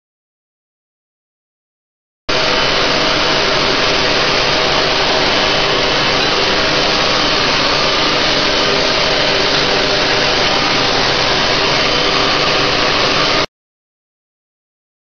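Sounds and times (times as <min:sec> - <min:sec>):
electric blower running: 0:02.3 - 0:13.5.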